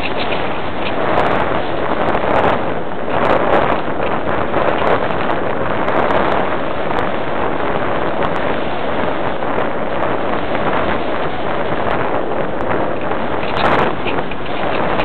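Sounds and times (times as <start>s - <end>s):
wind rushing over microphone: 0.0s - 15.0s.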